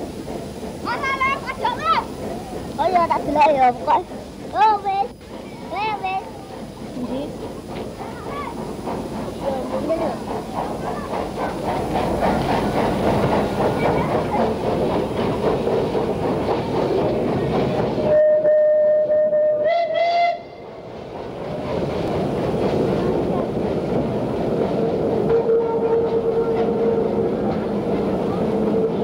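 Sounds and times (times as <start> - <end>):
steam locomotive running: 0.0 - 29.0
steam whistle: 18.1 - 20.6, 25.3 - 27.2.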